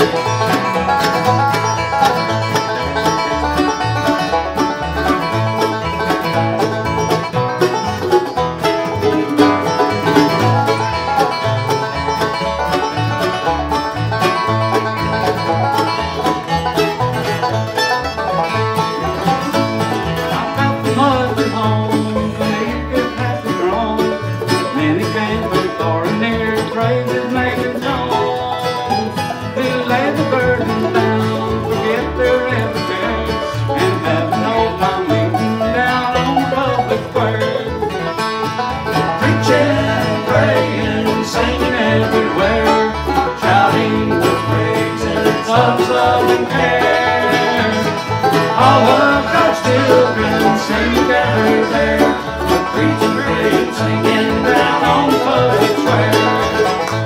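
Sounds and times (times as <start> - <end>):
banjo picking: 0.0 - 57.0
bluegrass band playing: 0.0 - 57.0.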